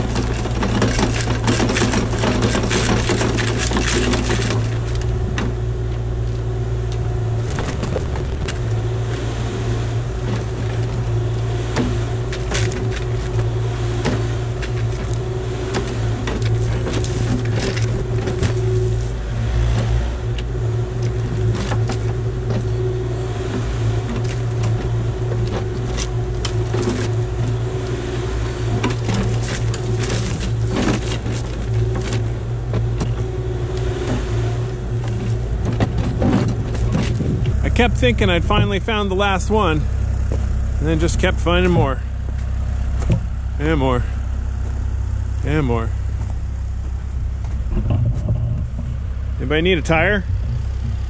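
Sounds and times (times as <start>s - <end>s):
diesel engine running under load: 0.0s - 51.0s
mulcher head shredding brush: 0.0s - 51.0s
wood debris ticking and cracking: 6.9s - 8.8s.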